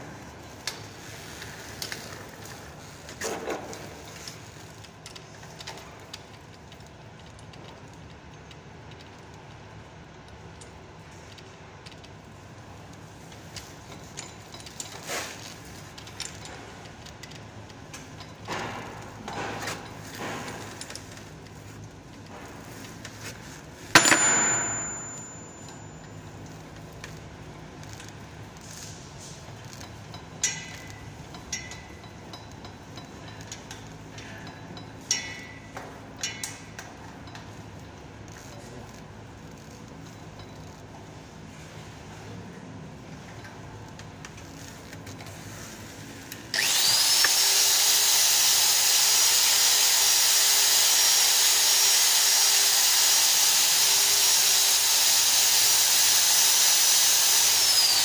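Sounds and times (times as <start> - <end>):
loud metal clang: 24.0 - 25.9.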